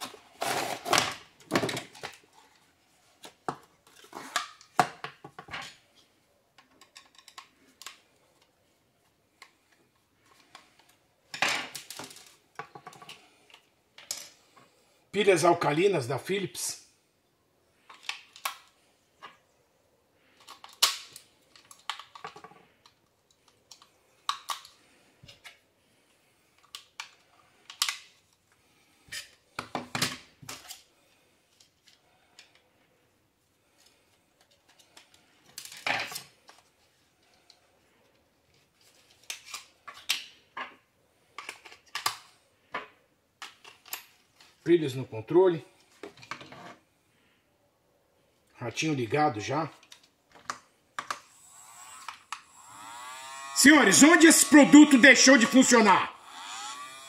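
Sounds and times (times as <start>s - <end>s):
plastic toy clatter: 6.6s - 8.0s, 20.4s - 25.6s.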